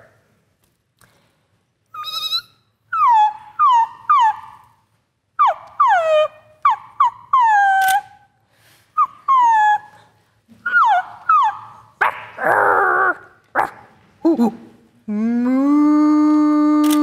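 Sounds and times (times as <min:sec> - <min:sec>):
puppies whimpering and yipping: 0:03.0 - 0:04.6, 0:05.4 - 0:08.0, 0:10.6 - 0:12.3.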